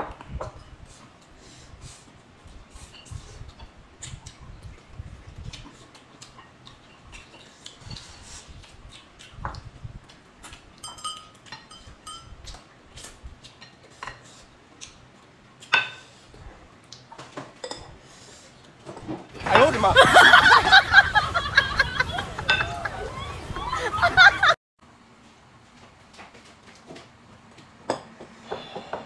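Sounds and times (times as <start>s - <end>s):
chewing and mouth noises: 2.4s - 15.7s
chopsticks clinking on plates: 10.8s - 12.6s.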